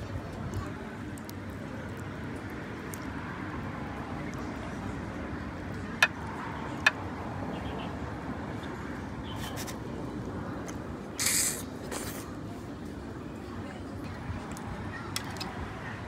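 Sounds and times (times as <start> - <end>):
short hiss: 11.2 - 12.3.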